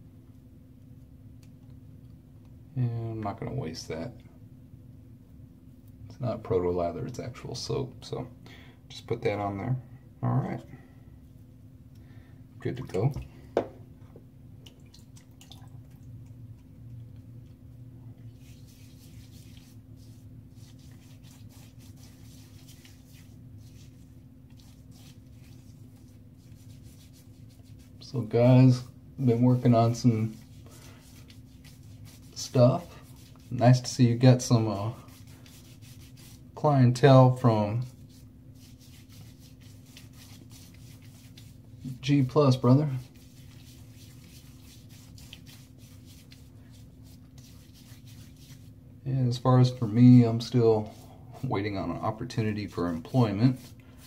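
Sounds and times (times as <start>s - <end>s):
steady low hum: 0.0s - 54.0s
fingers rubbing lather on skin: 18.2s - 48.8s, 49.6s - 54.0s.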